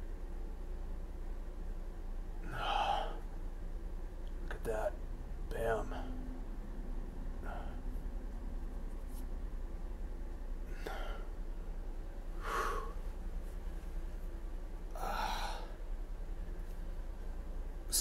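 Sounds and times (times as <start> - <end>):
steady low hum: 0.0 - 18.0
man breathing out noisily: 10.7 - 11.3, 12.4 - 13.1, 15.0 - 15.8.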